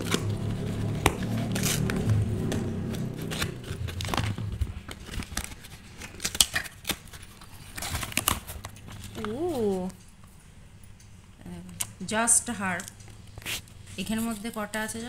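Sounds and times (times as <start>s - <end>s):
low hum: 0.0s - 7.3s
scissors snipping cardboard: 0.0s - 8.5s
cardboard tearing: 0.0s - 9.8s, 13.4s - 13.6s
clicks and rustles: 0.0s - 11.2s.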